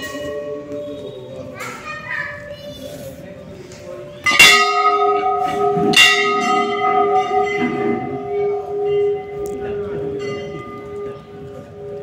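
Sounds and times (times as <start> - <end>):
temple bell ringing: 0.0 - 1.4, 4.2 - 12.0.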